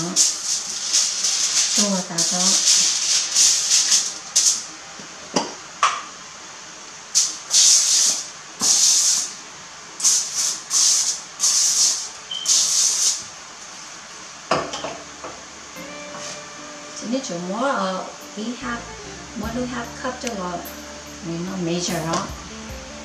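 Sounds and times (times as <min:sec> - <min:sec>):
aerosol spray hissing: 0:00.0 - 0:04.7, 0:07.2 - 0:09.4, 0:10.0 - 0:13.2.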